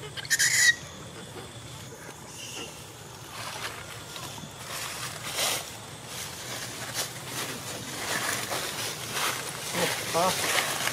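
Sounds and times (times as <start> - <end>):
outdoor background noise: 0.0 - 10.9
dry leaves rustling: 3.0 - 10.9.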